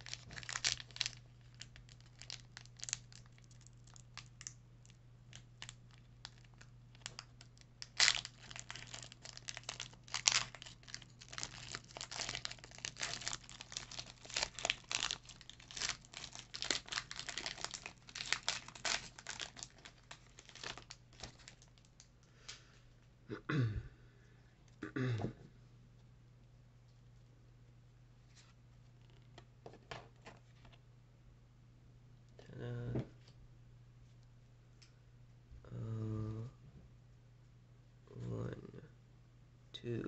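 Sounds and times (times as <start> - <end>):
foil wrapper ripping: 0.0 - 22.0
foil wrapper crinkling: 0.0 - 22.1
faint low hum: 0.0 - 40.0.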